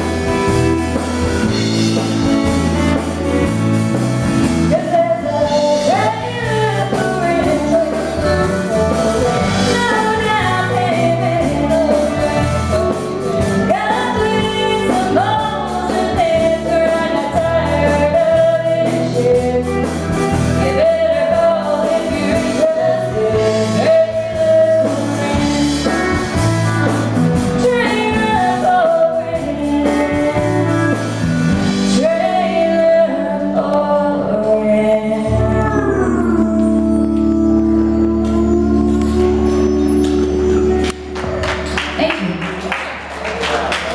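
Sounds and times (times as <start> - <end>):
bass and guitar accompaniment: 0.0 - 43.9
woman singing: 4.6 - 26.4, 27.5 - 40.4.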